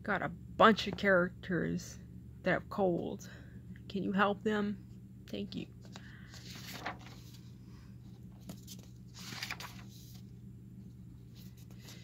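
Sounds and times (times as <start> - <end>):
paper rustling: 5.8 - 7.5, 8.2 - 10.3.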